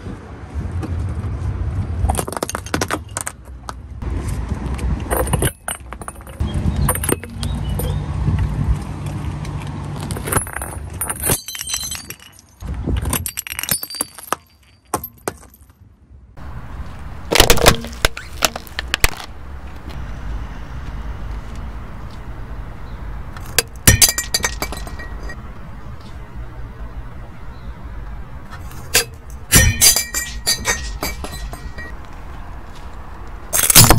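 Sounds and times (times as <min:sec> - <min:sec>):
car tyre crushing objects: 0:02.0 - 0:03.7, 0:16.8 - 0:20.0, 0:23.3 - 0:25.4, 0:28.4 - 0:33.9
ceramic cracking and shattering: 0:11.2 - 0:12.6, 0:29.0 - 0:31.9.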